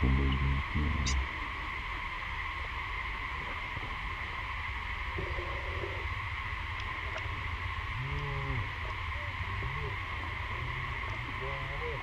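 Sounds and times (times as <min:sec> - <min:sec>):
high-pitched drone: 0:00.0 - 0:01.4
low rumble: 0:00.0 - 0:01.4
faint animal call: 0:05.2 - 0:06.2, 0:08.0 - 0:12.0.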